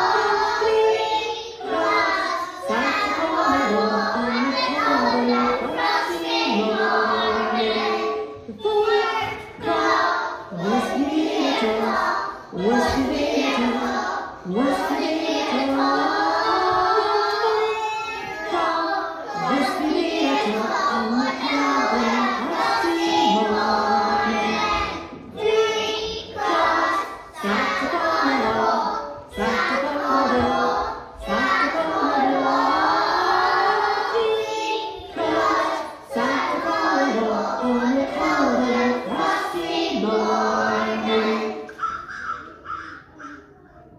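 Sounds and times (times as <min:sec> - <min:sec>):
children singing: 0:00.0 - 0:43.9.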